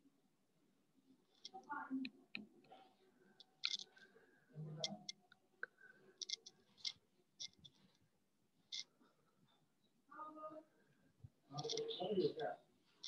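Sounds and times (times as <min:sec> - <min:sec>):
faint irregular clicks: 0:01.2 - 0:09.9, 0:11.2 - 0:12.0.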